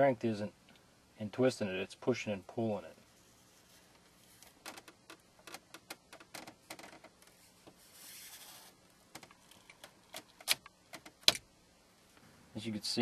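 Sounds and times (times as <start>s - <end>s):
plastic clicks and creaks: 4.4s - 7.3s, 9.1s - 11.4s.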